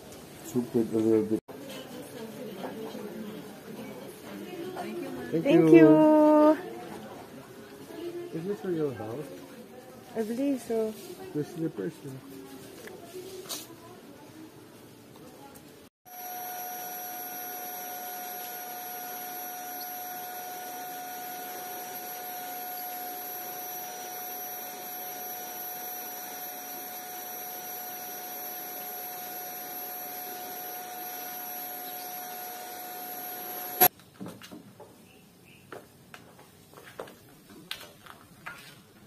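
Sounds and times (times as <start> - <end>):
vacuum cleaner running: 16.1 - 33.9.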